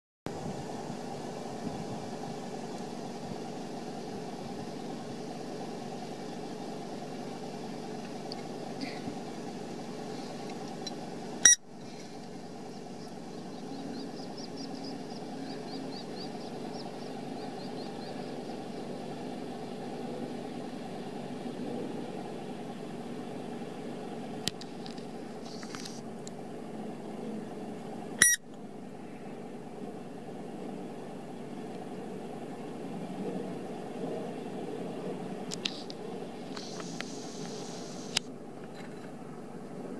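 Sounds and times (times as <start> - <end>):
low mechanical hum: 0.3 - 39.9
faint high twittering: 11.4 - 20.1.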